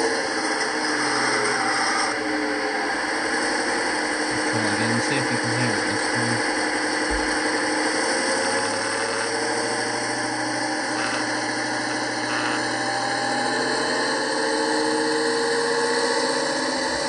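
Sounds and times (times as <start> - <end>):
diesel engine sound from speaker: 4.2 - 17.0
speaker rasps: 4.3 - 6.5, 10.9 - 11.4, 12.2 - 12.6.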